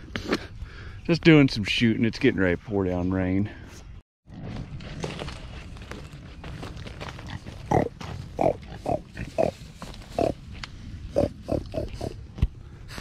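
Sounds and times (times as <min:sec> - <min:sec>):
pigs grunting: 0:07.2 - 0:10.4, 0:11.1 - 0:12.2.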